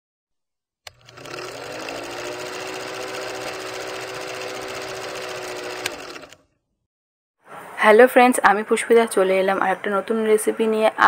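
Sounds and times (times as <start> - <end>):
projector mechanical clatter: 0.9 - 6.4
motor hum: 0.9 - 6.5.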